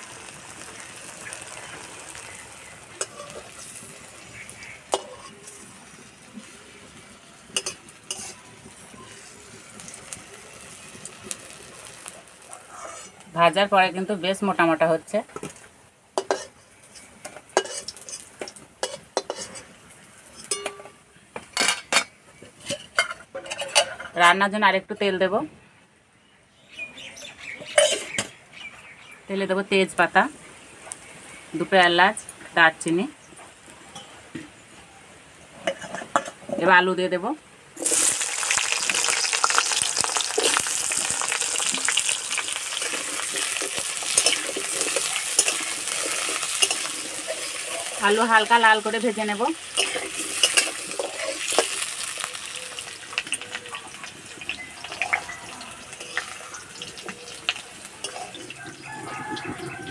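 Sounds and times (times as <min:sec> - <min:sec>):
oil sizzling: 0:00.0 - 0:24.0, 0:37.8 - 0:59.9
metal spatula clinking and scraping: 0:03.0 - 0:03.8, 0:04.9 - 0:05.6, 0:07.5 - 0:09.1, 0:16.2 - 0:24.3, 0:27.7 - 0:28.3, 0:42.8 - 0:48.0, 0:49.8 - 0:52.3, 0:55.9 - 0:58.5.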